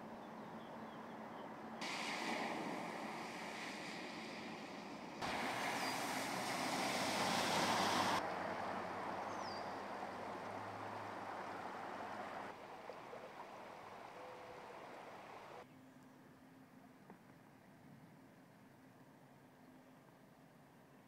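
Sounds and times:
floodwater rushing: 1.8s - 15.6s.

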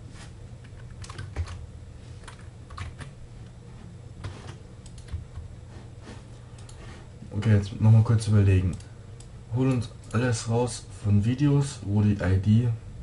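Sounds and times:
low steady hum: 0.0s - 13.0s
computer keyboard typing: 0.7s - 1.6s, 2.2s - 3.1s.

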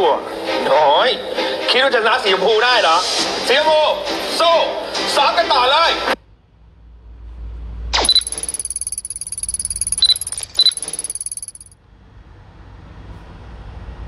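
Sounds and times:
short beeps: 8.0s - 11.8s.

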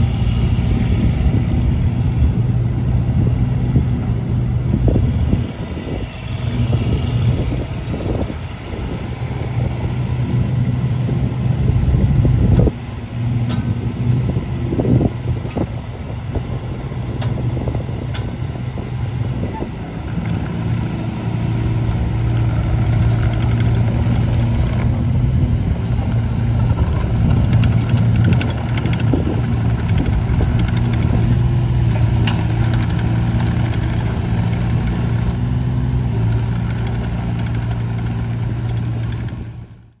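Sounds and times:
excavator diesel engine running: 0.0s - 40.0s.

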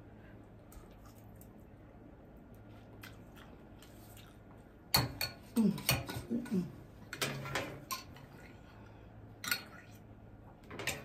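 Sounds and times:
utensils clinking against a dish: 7.2s - 8.3s.

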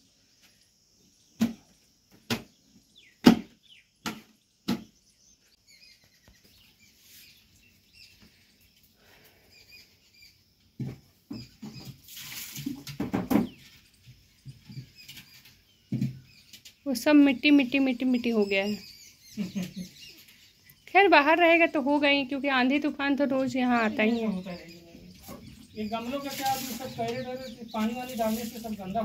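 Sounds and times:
faint bird chirps: 2.4s - 10.5s, 13.3s - 29.0s
sharp knocks: 3.2s - 4.9s.

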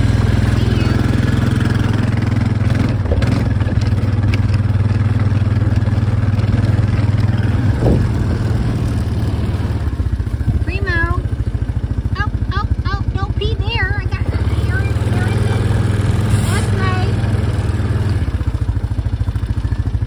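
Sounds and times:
atv engine running: 0.0s - 20.0s.

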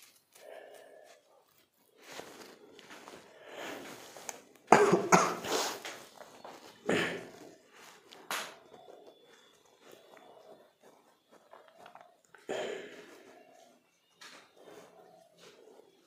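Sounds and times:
man coughing: 4.7s - 5.8s, 6.8s - 7.4s.

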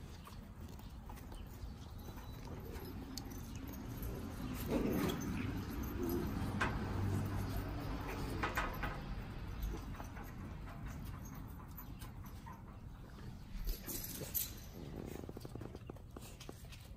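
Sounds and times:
light clicks and jingling: 0.0s - 16.9s
puppies scuffling: 0.0s - 16.9s.

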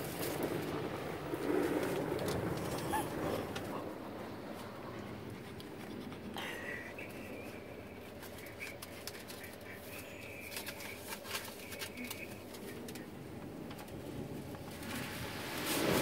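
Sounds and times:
scattered clicks: 8.0s - 14.7s
car wash spray hissing: 14.7s - 16.0s.

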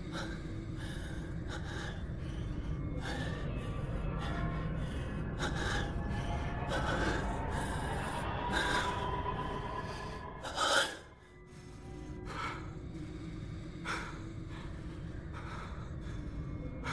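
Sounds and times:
low rumbling background: 0.0s - 16.9s.

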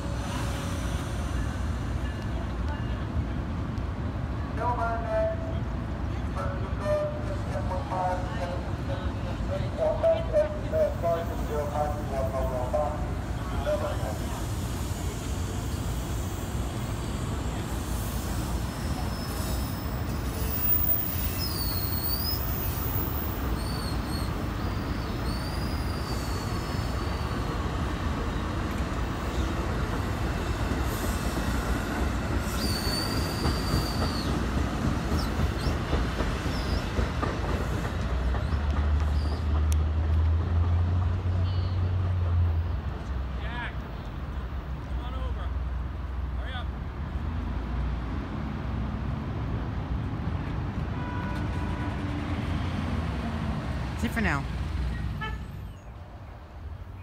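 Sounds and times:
train wheels rumbling and clacking: 6.7s - 46.2s
high-pitched wheel squeals: 18.7s - 23.0s.

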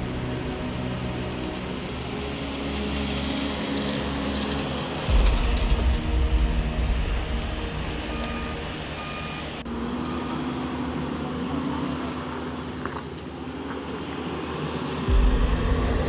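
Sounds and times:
loader engine hum: 0.0s - 16.0s
reversing alarm beeps: 8.0s - 9.6s.

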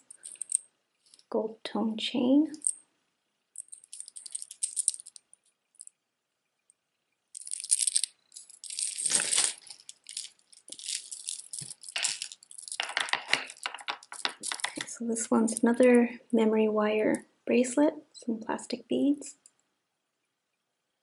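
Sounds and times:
metal chains and beads jingling: 0.0s - 1.2s, 2.6s - 2.8s, 3.6s - 5.2s, 7.4s - 14.8s.

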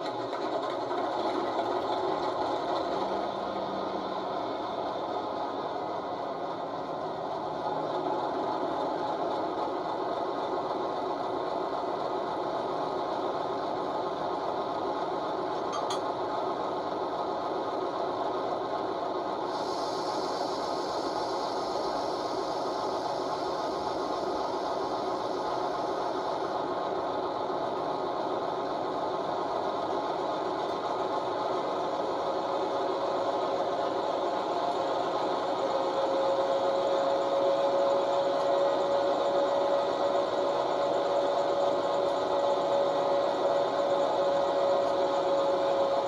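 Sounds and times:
diesel engine mechanical clatter: 0.0s - 46.0s
hiss: 19.2s - 46.0s.

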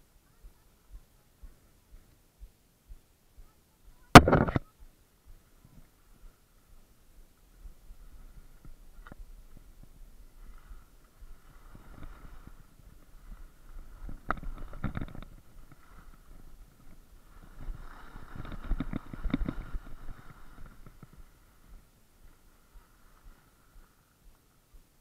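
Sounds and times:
skis scraping over snow: 5.6s - 25.0s.

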